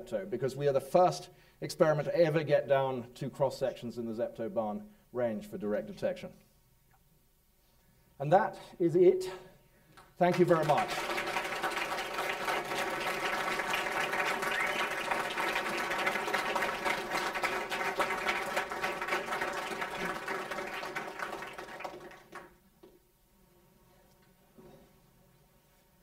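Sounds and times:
audience applauding: 10.3 - 22.6.

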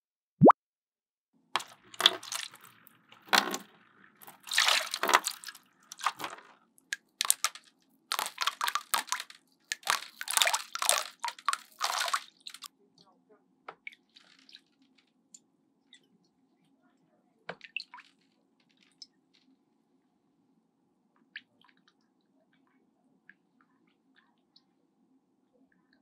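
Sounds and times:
water splashing: 1.6 - 12.7
faint low hum: 12.7 - 26.0.

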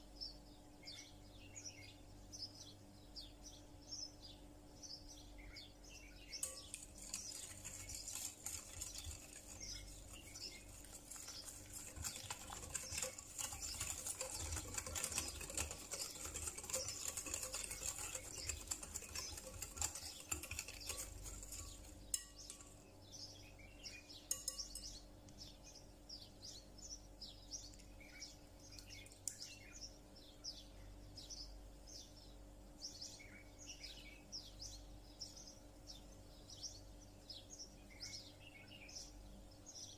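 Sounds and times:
small birds chirping: 0.0 - 39.9
utensil scraping glass bowl: 6.4 - 22.8.

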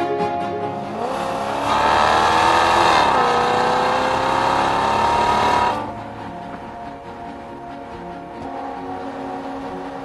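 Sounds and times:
car engine accelerating: 0.8 - 10.0.

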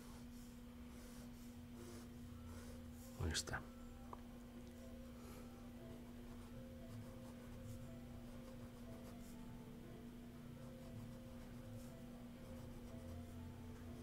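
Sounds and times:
pen scratching on paper: 0.0 - 2.8, 6.3 - 9.4, 10.7 - 13.4
steady low hum: 0.0 - 14.0.

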